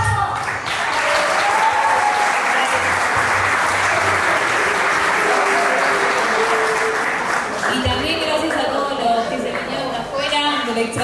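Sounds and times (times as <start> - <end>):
voices and cheers: 0.0 - 8.2
crowd applauding: 0.0 - 10.2.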